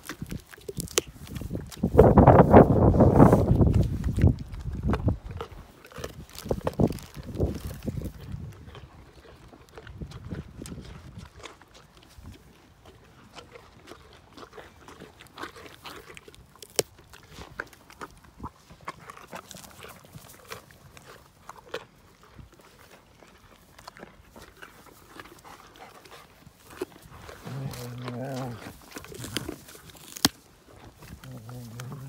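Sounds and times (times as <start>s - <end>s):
dogs crunching carrots: 0.0s - 32.0s.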